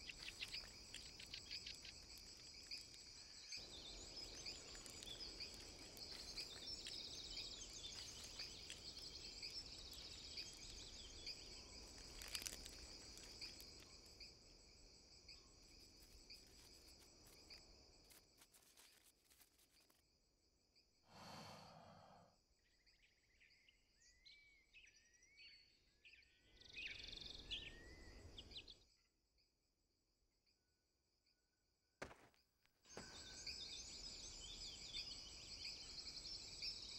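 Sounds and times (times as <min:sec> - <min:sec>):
high insect trill: 0:00.0 - 0:20.0.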